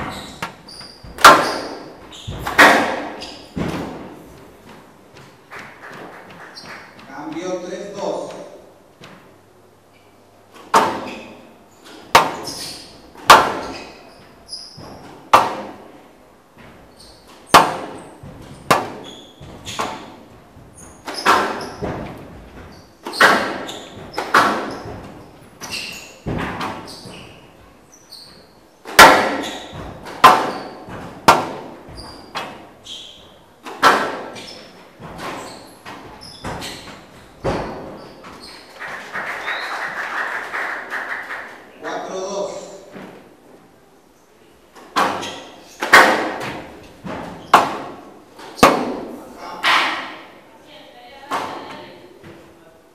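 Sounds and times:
squash ball hits echoing: 0:00.0 - 0:07.5, 0:10.5 - 0:16.0, 0:16.6 - 0:27.5, 0:28.8 - 0:38.4, 0:44.9 - 0:50.3.

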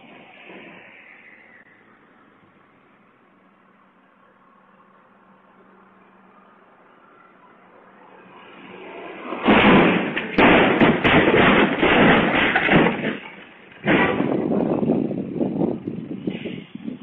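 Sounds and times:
car crash impact: 0:09.1 - 0:15.0
banging and clattering: 0:09.4 - 0:15.1.

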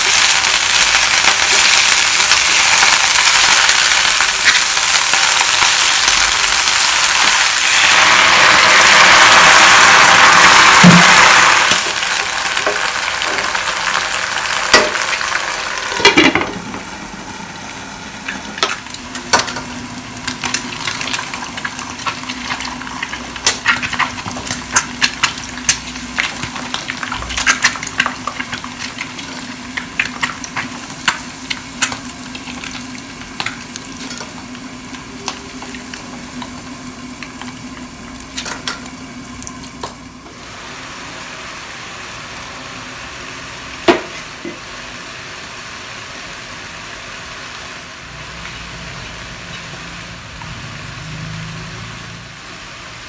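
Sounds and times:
oil sizzling and popping: 0:00.0 - 0:53.0
spatula stirring in pot: 0:20.8 - 0:36.6.

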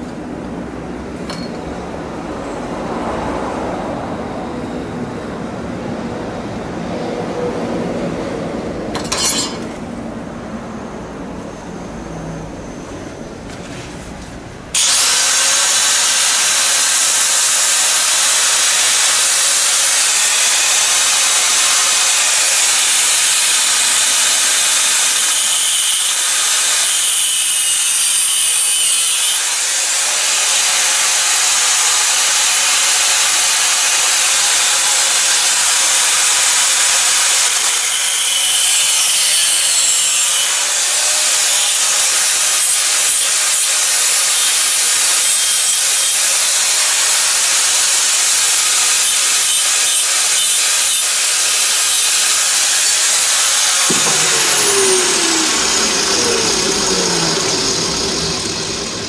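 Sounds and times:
angle grinder cutting metal: 0:09.0 - 0:09.6, 0:14.8 - 0:59.0.

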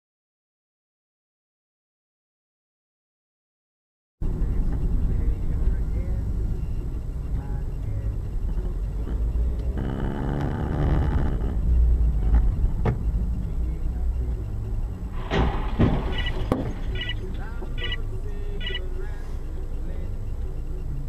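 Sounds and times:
car driving rumble: 0:04.2 - 0:21.0.

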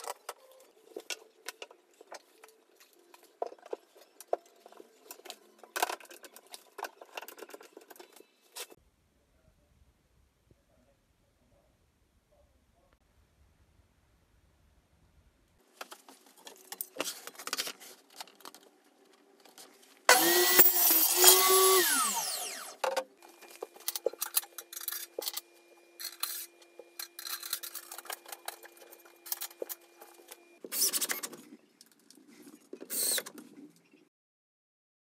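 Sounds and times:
parts clicking and knocking: 0:15.8 - 0:32.2
power saw winding down: 0:20.1 - 0:22.8.

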